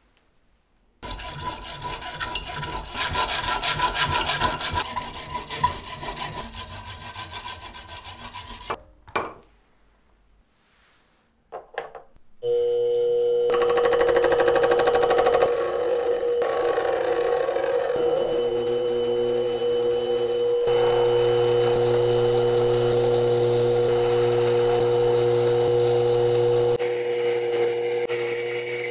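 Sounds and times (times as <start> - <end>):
saw cutting brass tube: 1.0 - 8.8, 13.5 - 28.9
metal lathe running: 13.5 - 28.9.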